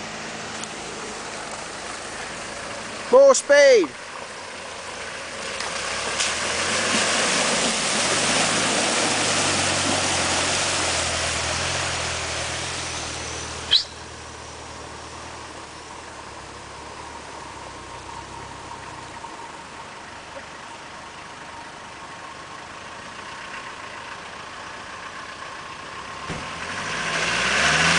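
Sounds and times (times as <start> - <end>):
car engine under load: 0.0 - 27.9
water splashing around wheels: 0.0 - 27.9
sharp squeak: 12.8 - 14.1.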